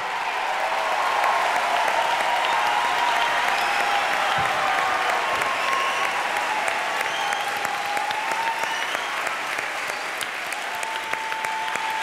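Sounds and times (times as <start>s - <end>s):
audience applauding: 0.0s - 12.0s.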